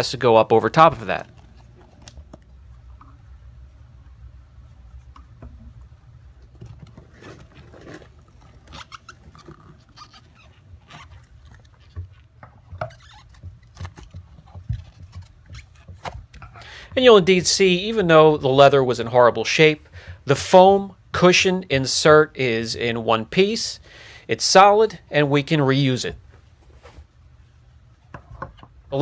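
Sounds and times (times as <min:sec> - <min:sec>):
leather cover scratchy rustling and tearing: 0:06.7 - 0:16.6.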